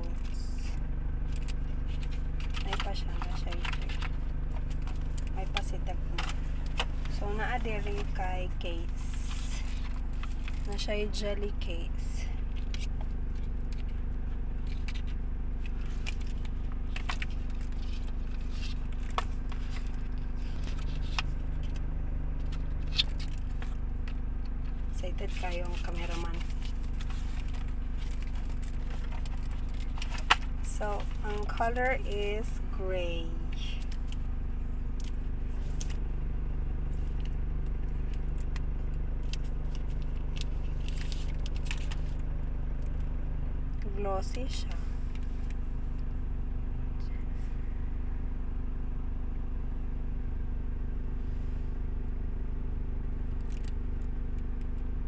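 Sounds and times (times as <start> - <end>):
steady low hum: 0.0 - 55.0
hands handling plastic packaging: 1.2 - 10.9, 12.5 - 32.6, 34.9 - 36.1, 36.9 - 43.0
plastic wrap crinkling: 1.2 - 10.9, 12.4 - 32.6, 36.9 - 43.0.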